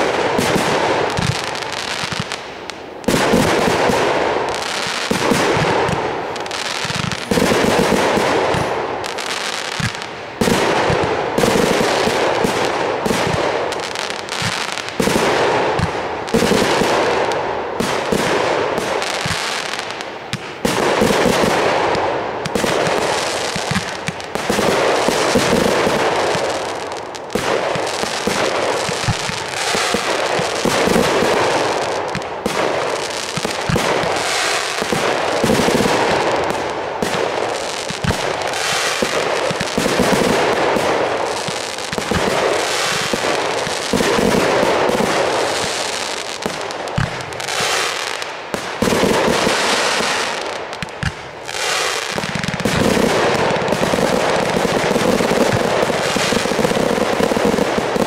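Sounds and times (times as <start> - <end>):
fireworks launching and bursting: 0.0 - 58.0.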